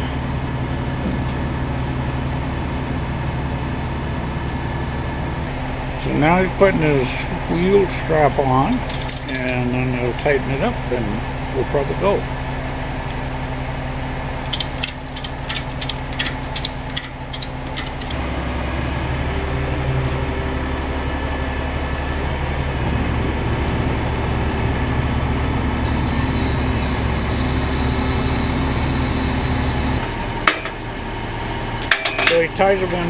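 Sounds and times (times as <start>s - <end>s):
tow truck engine running: 0.0s - 33.0s
ratchet strap clicking: 14.4s - 18.2s.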